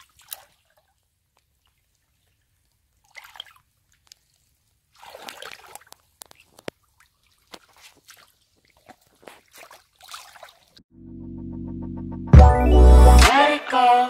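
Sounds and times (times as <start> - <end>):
squelches and splashes in muddy water: 0.0 - 10.8.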